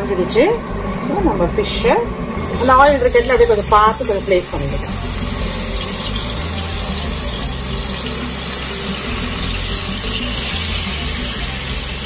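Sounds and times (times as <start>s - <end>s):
fish sizzling in hot oil: 2.4s - 12.0s.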